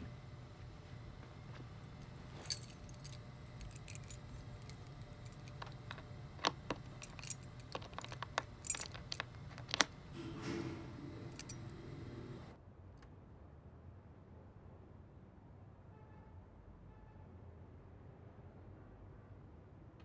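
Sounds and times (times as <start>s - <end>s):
steady low hum: 0.0s - 12.6s
key clicking and scraping in lock: 2.0s - 12.5s
keys jangling: 2.0s - 12.5s.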